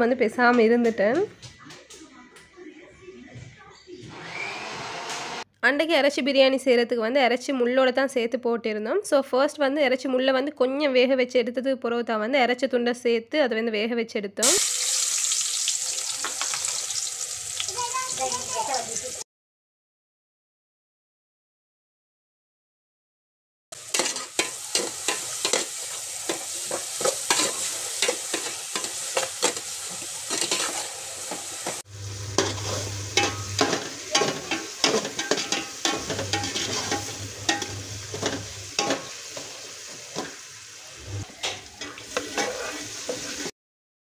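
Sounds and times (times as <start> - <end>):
food sizzling: 14.4 - 19.2, 23.7 - 43.5
metal ladle scraping pot: 23.9 - 40.4, 41.0 - 43.5.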